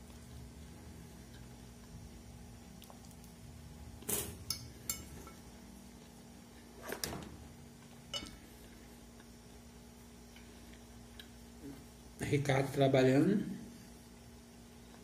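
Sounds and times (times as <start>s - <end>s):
fork clinking on ceramic bowl: 8.1s - 8.4s.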